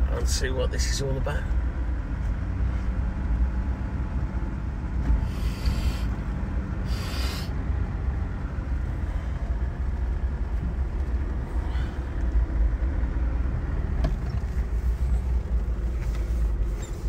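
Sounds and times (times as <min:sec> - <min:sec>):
vehicle engine and road noise: 0:00.0 - 0:17.0
short hisses: 0:05.2 - 0:06.2, 0:06.8 - 0:07.6.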